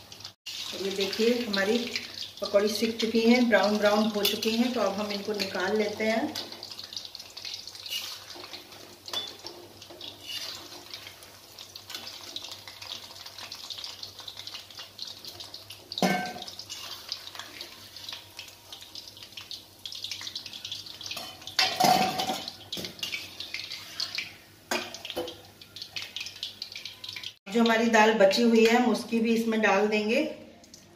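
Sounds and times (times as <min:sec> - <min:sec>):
fritters sizzling in hot oil: 0:00.0 - 0:29.4
steel skimmer clanking against pan: 0:09.1 - 0:10.1.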